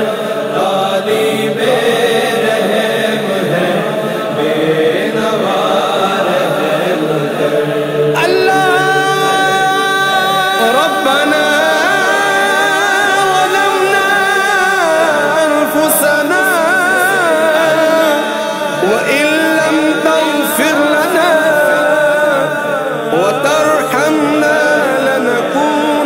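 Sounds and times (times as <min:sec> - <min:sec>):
man singing devotional song: 0:00.0 - 0:26.0.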